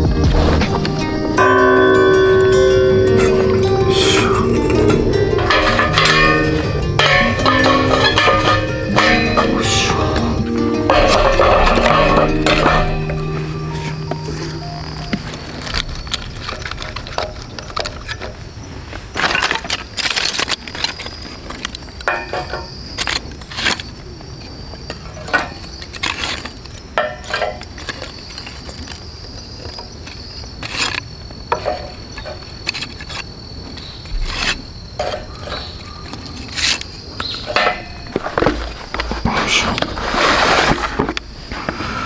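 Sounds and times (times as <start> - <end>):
high-pitched insect drone: 0.0 - 18.7
kindling sticks clacking: 0.6 - 24.0, 24.9 - 40.0.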